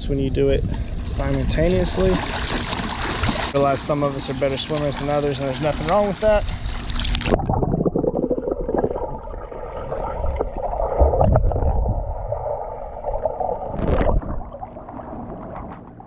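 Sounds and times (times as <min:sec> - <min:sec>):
pool water gurgling and sloshing: 0:00.2 - 0:16.0
water splash: 0:01.9 - 0:03.6, 0:04.7 - 0:15.8.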